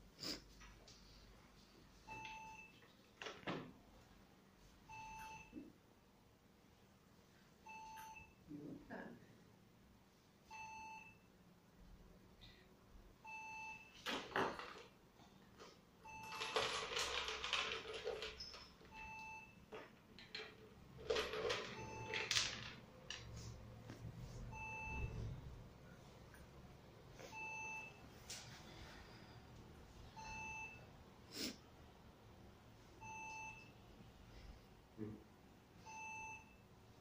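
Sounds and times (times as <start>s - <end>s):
plastic toys rattling: 16.2s - 18.9s, 19.8s - 23.4s.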